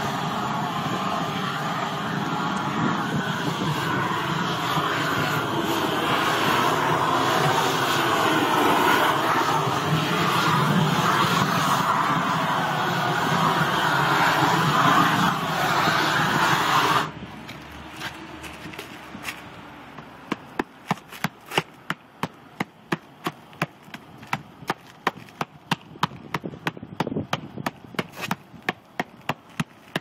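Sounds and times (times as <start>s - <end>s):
roofing torch roaring hiss: 0.0s - 17.9s
sharp tapping knocks: 20.0s - 30.0s.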